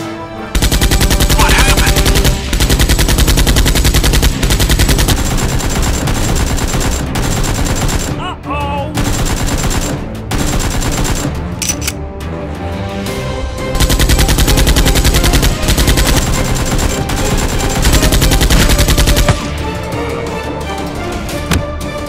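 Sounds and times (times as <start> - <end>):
machine-gun rapid fire: 0.5 - 8.2, 9.0 - 11.8, 13.7 - 20.1.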